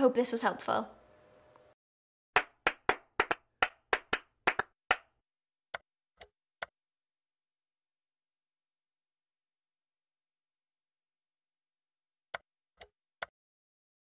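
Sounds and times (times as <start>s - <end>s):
clap-like percussive hits: 2.4s - 5.1s.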